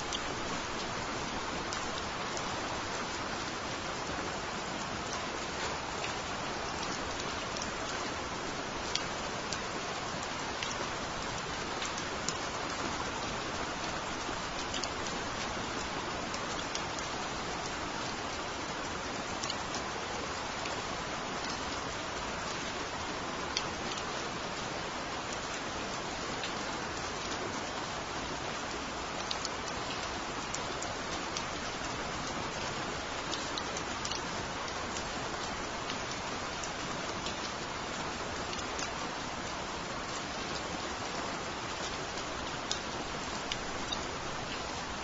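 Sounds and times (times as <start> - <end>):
raindrops ticking: 0.0 - 3.2, 4.8 - 19.9, 28.5 - 39.4, 40.0 - 45.0
steady rain hiss: 0.0 - 45.0.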